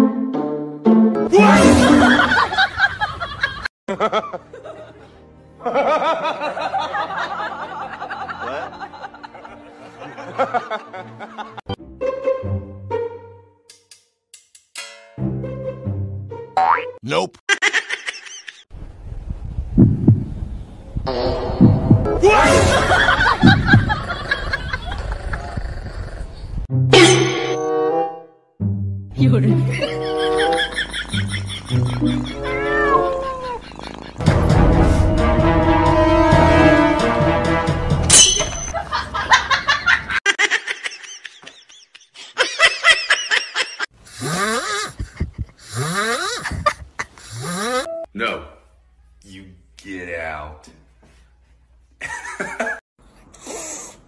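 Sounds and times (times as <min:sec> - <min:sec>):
person laughing: 0:01.4 - 0:04.4, 0:22.5 - 0:25.6, 0:29.5 - 0:34.3, 0:38.8 - 0:47.9, 0:52.0 - 0:52.8
low thumps through microphone: 0:19.2 - 0:22.1, 0:23.4 - 0:24.1.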